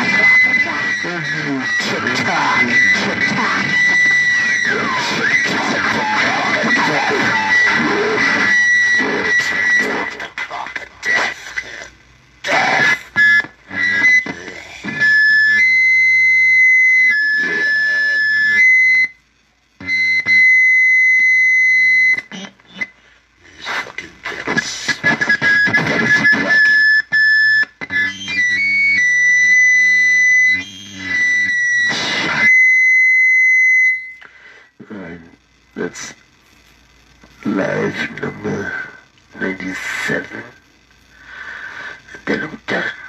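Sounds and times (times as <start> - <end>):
high whistling electronic tones: 25.3 - 34.2.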